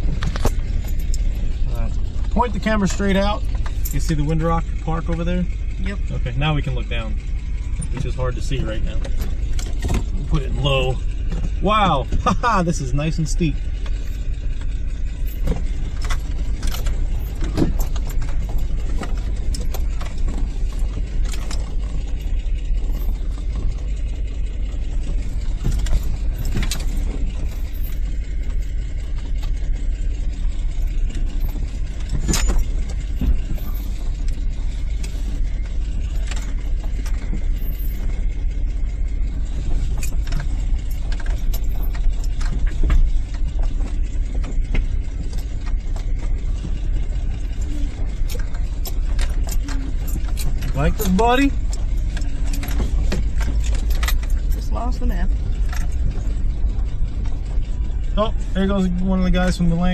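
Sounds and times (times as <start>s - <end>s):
car body rattles and knocks: 0.0s - 5.8s, 7.1s - 59.9s
car engine running: 0.0s - 59.9s.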